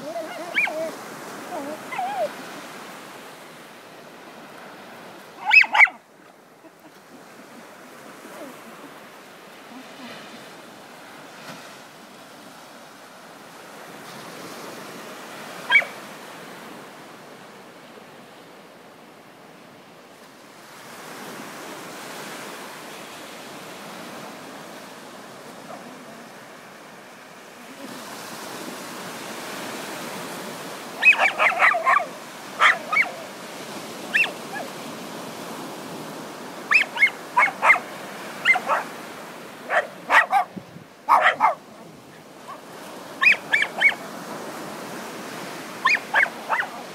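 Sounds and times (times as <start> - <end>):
dog barking in sharp yips: 0.3 - 0.9, 5.4 - 6.0, 15.7 - 16.0, 31.0 - 33.3, 34.1 - 34.7, 36.7 - 38.9, 39.7 - 40.5, 41.1 - 41.6, 43.2 - 44.0, 45.8 - 46.8.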